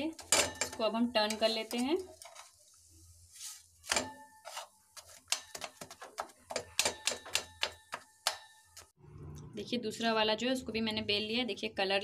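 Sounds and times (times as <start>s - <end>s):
fork tines tapping a pan: 0.1s - 2.5s, 3.9s - 8.9s.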